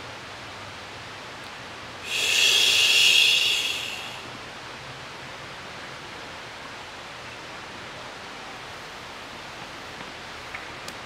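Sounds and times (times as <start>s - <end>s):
man exhaling breathy hiss: 2.0s - 4.4s.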